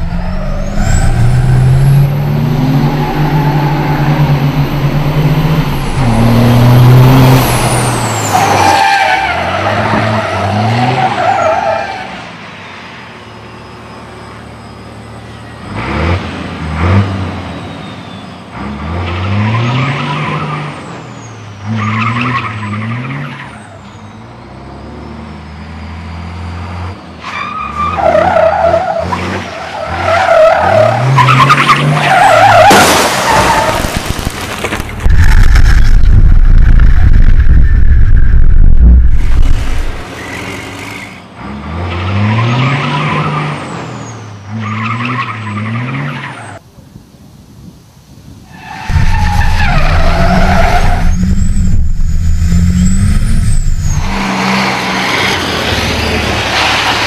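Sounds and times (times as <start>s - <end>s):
diesel engine revving hard: 0.0s - 8.6s, 15.7s - 17.6s, 48.9s - 57.0s
tyres squealing and skidding: 0.0s - 16.2s, 17.5s - 46.6s, 48.5s - 57.0s.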